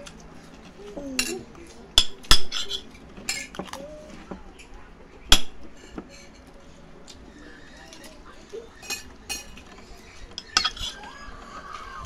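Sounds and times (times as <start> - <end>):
spoons clinking on ceramic: 2.0 - 3.8, 10.4 - 11.0.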